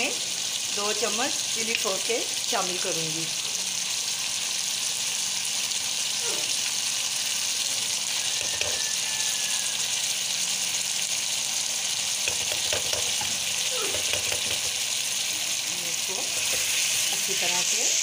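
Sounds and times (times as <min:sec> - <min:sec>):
chicken sizzling in oil: 0:00.0 - 0:18.0
spatula scraping pan: 0:08.3 - 0:09.0, 0:12.3 - 0:14.8, 0:16.2 - 0:18.0.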